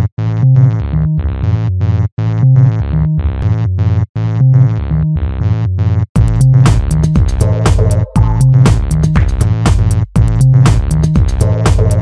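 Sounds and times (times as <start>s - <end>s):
deep bass line: 0.0s - 12.0s
synthesizer riff: 6.2s - 12.0s.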